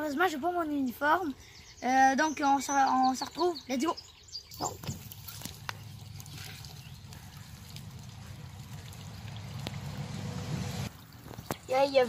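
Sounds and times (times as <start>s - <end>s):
hands squelching wet clay: 4.5s - 10.0s
steady low rumble: 5.8s - 11.0s.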